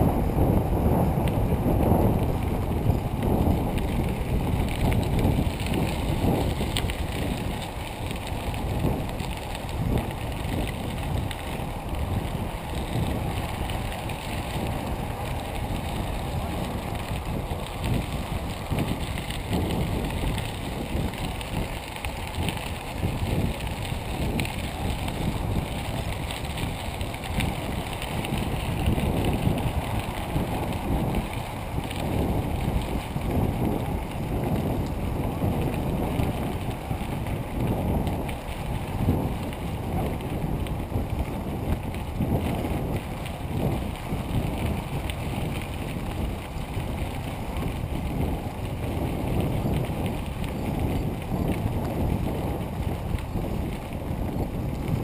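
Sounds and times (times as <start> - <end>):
wind buffeting microphone: 0.0 - 55.0.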